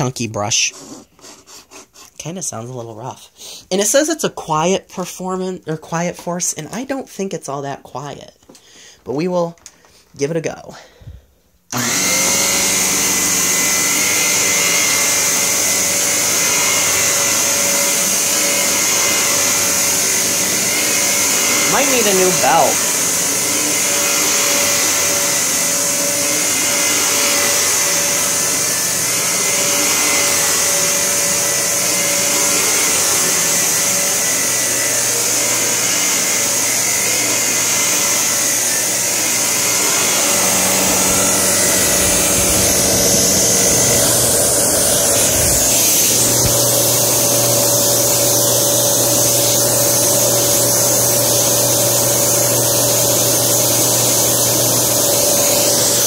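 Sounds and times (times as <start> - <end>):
vacuum cleaner on carpet: 11.7 - 56.0.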